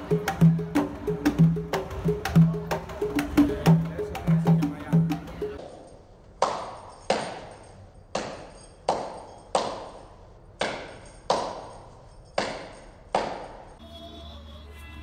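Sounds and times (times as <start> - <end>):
sharp ringing percussive strikes: 0.0 - 5.7.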